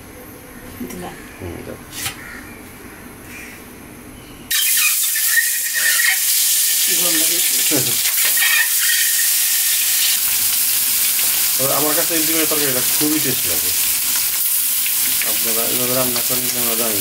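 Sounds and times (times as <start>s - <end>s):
oil sizzling in a wok: 4.5s - 17.0s.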